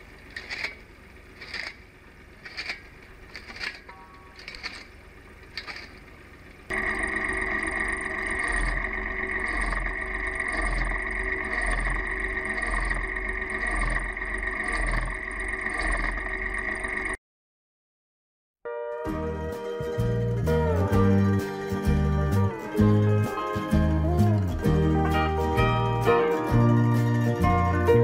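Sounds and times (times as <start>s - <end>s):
firewood cutting machine running: 0.0s - 17.2s, 19.8s - 28.0s.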